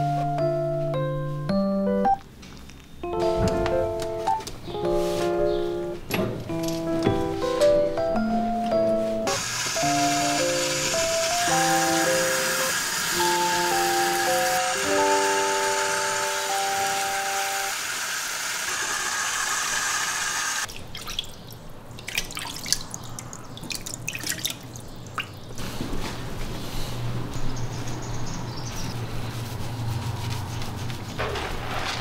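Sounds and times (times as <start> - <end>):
water splashing in plastic tub: 20.7 - 25.4.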